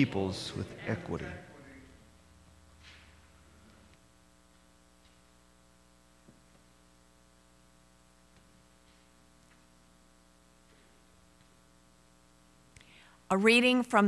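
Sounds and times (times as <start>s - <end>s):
electrical hum: 0.0s - 14.0s.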